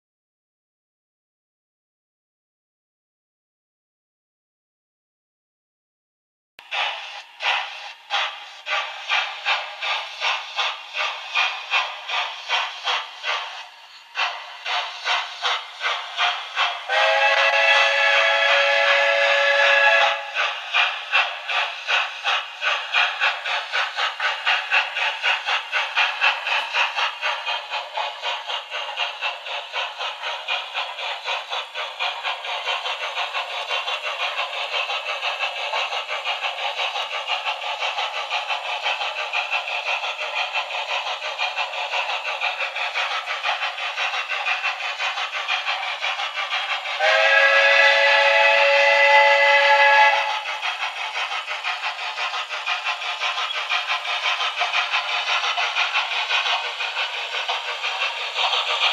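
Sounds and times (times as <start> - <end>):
model steam locomotive chuffs: 6.6 - 58.9.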